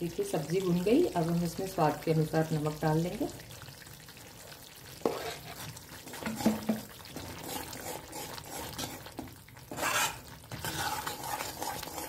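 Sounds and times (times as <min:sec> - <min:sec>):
metal spatula scraping gravy: 0:05.0 - 0:12.0
spatula knocking against pan: 0:06.2 - 0:06.9.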